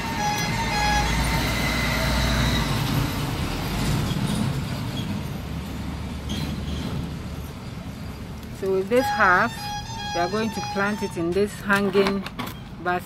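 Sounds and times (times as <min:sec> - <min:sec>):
two-tone siren: 0:00.0 - 0:02.9
vehicle rumbling past: 0:00.0 - 0:08.4
road traffic: 0:00.0 - 0:13.0.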